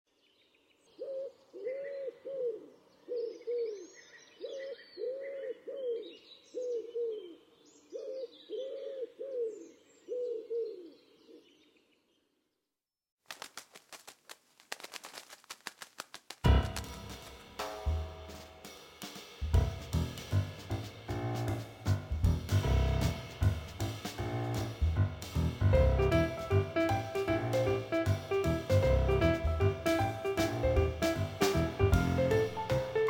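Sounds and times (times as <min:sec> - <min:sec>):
wood pigeon cooing: 0:08.0 - 0:11.0
rapid irregular clicks: 0:13.3 - 0:17.6.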